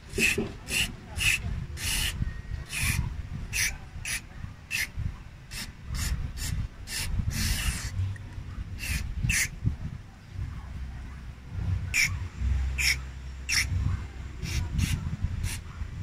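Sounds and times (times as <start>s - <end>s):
aerosol spray hissing bursts: 0.1s - 4.9s, 5.5s - 8.0s, 8.8s - 9.5s, 12.8s - 13.7s, 14.4s - 15.6s.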